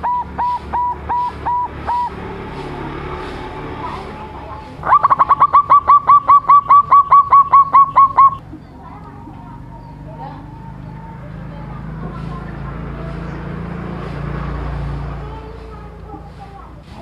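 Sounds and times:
dove cooing in short notes: 0:00.0 - 0:02.2, 0:04.8 - 0:08.4.

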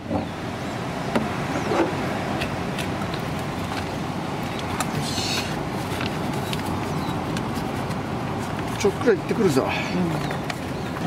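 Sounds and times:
roadside traffic: 0:00.0 - 0:11.0.

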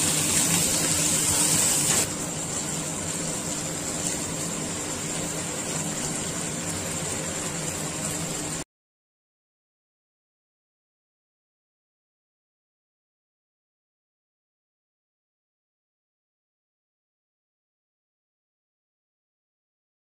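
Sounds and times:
cabbage sizzling in oil: 0:00.0 - 0:08.6.

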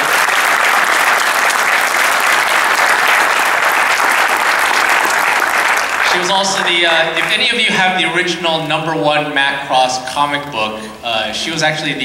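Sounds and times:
large audience applauding: 0:00.0 - 0:07.6.

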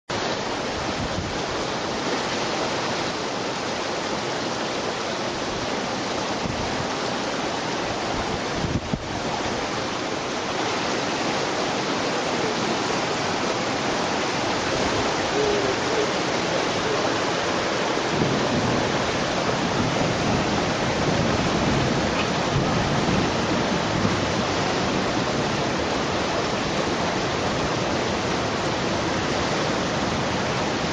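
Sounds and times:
floodwater rushing: 0:00.1 - 0:30.9.

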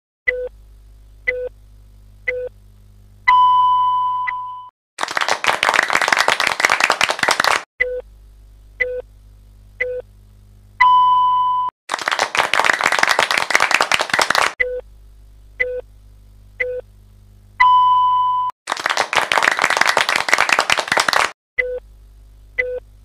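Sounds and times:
long high beep: 0:03.3 - 0:04.7, 0:10.8 - 0:11.7, 0:17.6 - 0:18.5
short beeps: 0:03.3 - 0:04.7, 0:10.8 - 0:11.7, 0:17.6 - 0:18.5
applause: 0:05.0 - 0:07.7, 0:11.9 - 0:14.6, 0:18.7 - 0:21.4.

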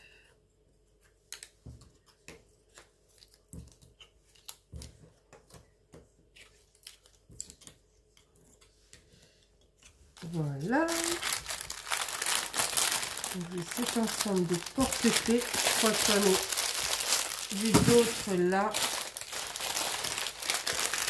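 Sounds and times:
plastic bags rustling: 0:10.2 - 0:21.0.

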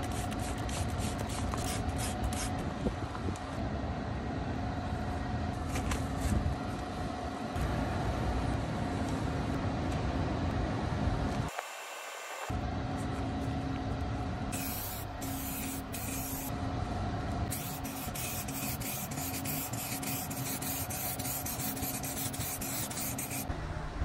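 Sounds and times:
low hum: 0:12.5 - 0:24.0
spray hiss bursts: 0:14.6 - 0:16.5, 0:17.5 - 0:23.5.

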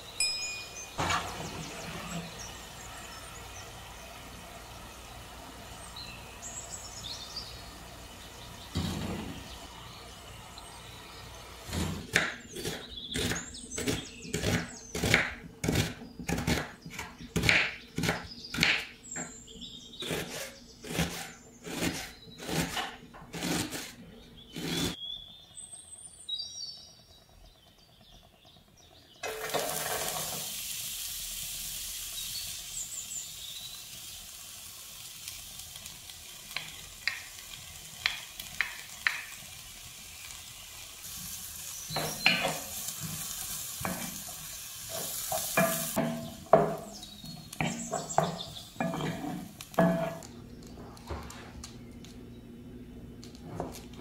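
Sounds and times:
knife chopping onion on board: 0:11.8 - 0:19.3, 0:20.0 - 0:23.9
oil sizzling in frying pan: 0:26.3 - 0:50.2
wooden spatula tapping: 0:38.0 - 0:39.4.

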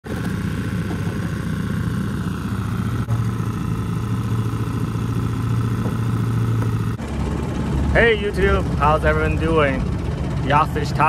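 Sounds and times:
outboard motor idling: 0:00.0 - 0:11.0.

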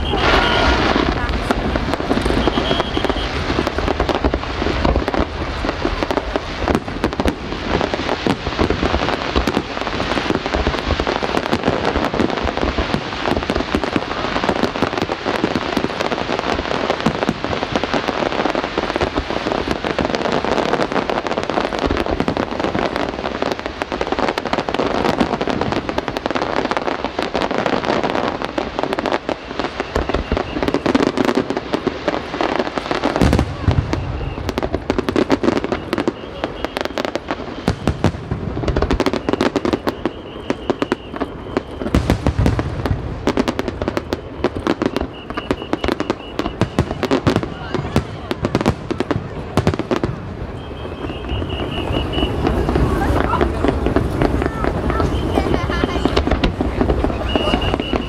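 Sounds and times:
fireworks popping and crackling: 0:00.0 - 0:58.0.

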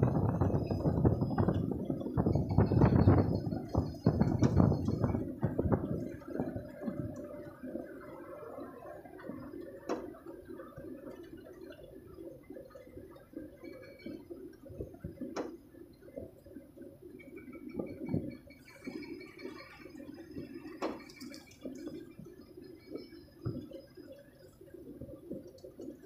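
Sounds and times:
heavy rain on cab roof: 0:00.0 - 0:10.2.

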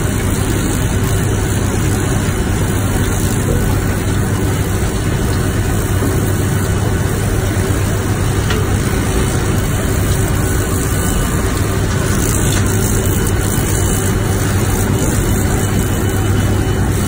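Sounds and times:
low machine drone: 0:00.0 - 0:17.0
pressure washer jet spraying metal: 0:00.0 - 0:17.0.

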